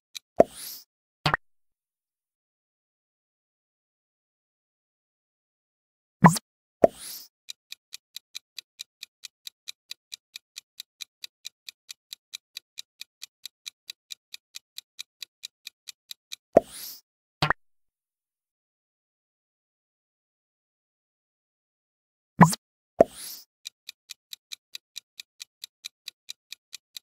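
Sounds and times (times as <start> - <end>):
electronic timer ticks: 0.2 - 1.4, 6.2 - 17.0, 22.4 - 27.0
quick double click: 22.4 - 23.5.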